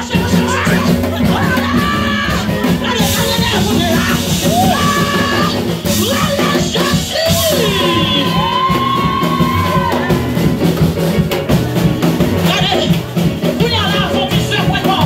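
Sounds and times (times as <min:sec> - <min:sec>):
person singing: 0:00.0 - 0:10.2
drum kit and band: 0:00.0 - 0:15.0.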